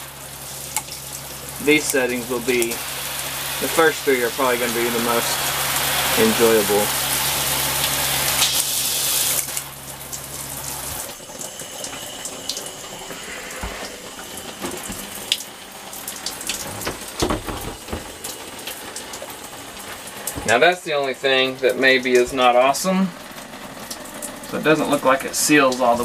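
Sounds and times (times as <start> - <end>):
water spraying from shower head: 0.0 - 26.0
plastic handle and hose knocking: 14.5 - 15.2, 16.5 - 18.3.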